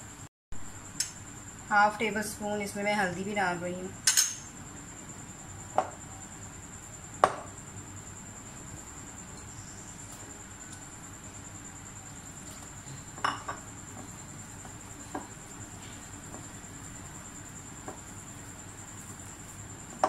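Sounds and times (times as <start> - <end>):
knocks against glass bowl: 7.2 - 7.5.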